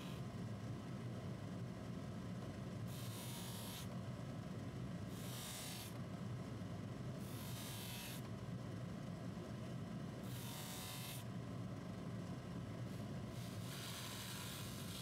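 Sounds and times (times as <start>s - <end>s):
metal part hissing on buffing wheel: 13.4s - 15.0s
polishing machine motor humming: 13.4s - 15.0s.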